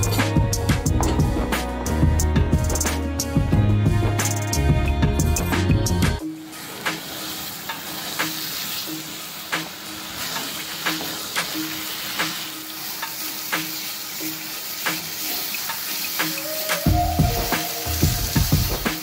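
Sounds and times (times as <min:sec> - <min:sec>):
curd sizzling in pan: 0:06.2 - 0:19.0.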